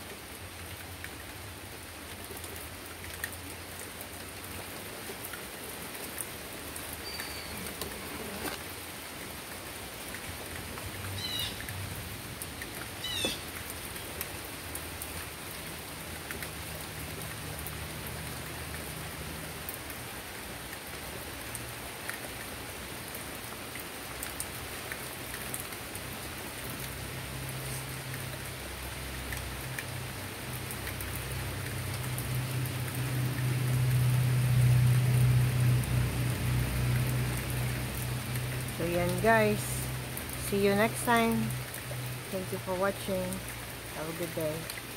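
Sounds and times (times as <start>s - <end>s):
rain on wooden deck and trees: 0.0s - 44.9s
bird chirping: 7.0s - 7.8s.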